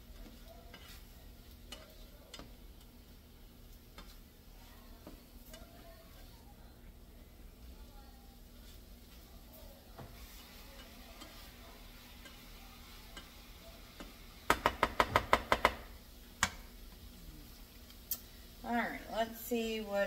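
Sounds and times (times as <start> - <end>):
utensil tapping a frying pan: 0.0 - 6.3, 10.0 - 16.7.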